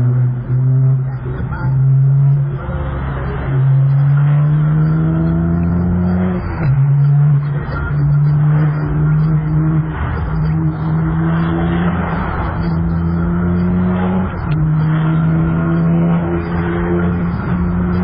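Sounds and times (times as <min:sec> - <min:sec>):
car engine accelerating: 0:00.0 - 0:18.0.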